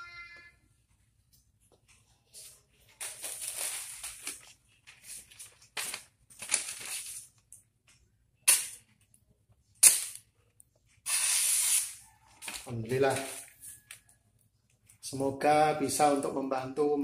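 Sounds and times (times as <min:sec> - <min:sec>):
newspaper rustling: 0:02.0 - 0:07.6, 0:12.4 - 0:13.9.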